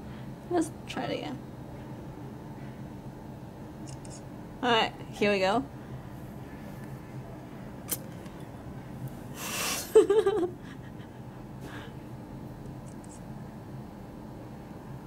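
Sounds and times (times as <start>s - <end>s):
breathy exhale: 9.4s - 9.9s.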